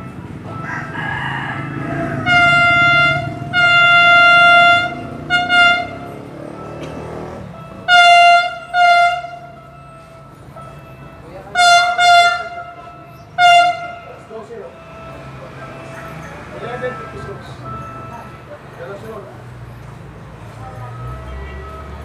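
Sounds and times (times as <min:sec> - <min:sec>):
train horn blasts: 0:01.6 - 0:06.3, 0:07.5 - 0:09.8, 0:11.5 - 0:15.2.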